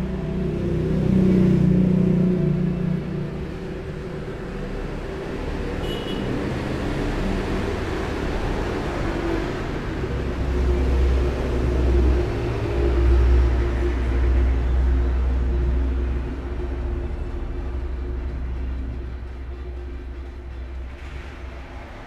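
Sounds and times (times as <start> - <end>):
road traffic rumbling: 0.0 - 22.0.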